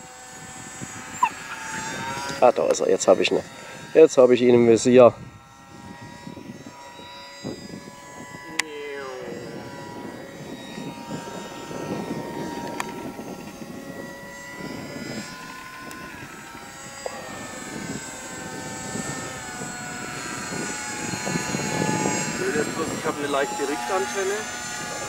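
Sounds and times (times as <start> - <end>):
model plane motor whining: 0.0 - 25.0.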